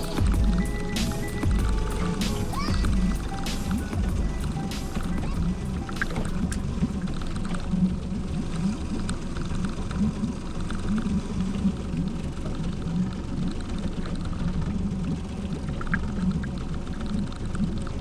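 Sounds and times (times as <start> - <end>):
boat engine rumble and hum: 0.0 - 18.0.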